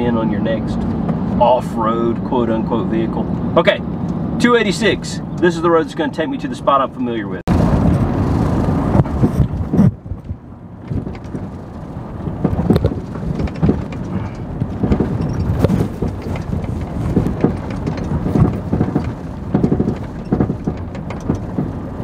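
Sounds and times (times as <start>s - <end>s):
vehicle rumbling on dirt road: 0.0s - 22.0s
vehicle knocks and jolts: 7.5s - 22.0s.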